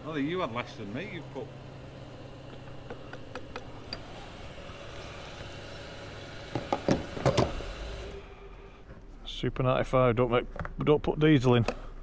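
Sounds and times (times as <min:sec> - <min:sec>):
vehicle engine idling: 0:00.0 - 0:06.5
sharp clunks and clicks: 0:02.6 - 0:04.0.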